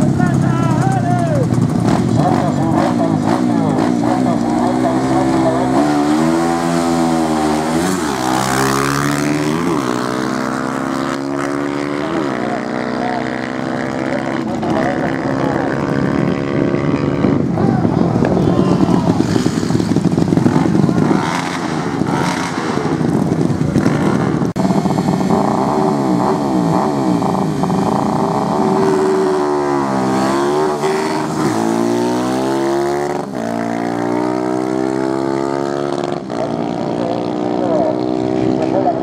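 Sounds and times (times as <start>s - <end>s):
motorcycle engines revving: 0.0s - 39.0s.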